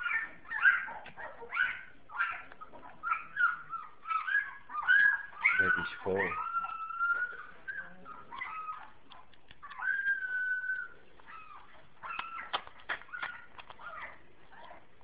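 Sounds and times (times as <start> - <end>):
puppies whining: 0.0 - 15.0
wet clicks of eating: 1.0 - 1.2, 8.3 - 15.0.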